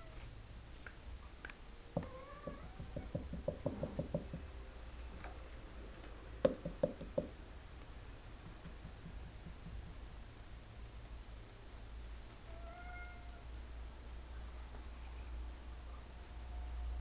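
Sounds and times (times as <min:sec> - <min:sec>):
hollow knocks on cat tree post: 0:02.0 - 0:04.5, 0:06.4 - 0:07.4, 0:08.4 - 0:10.0.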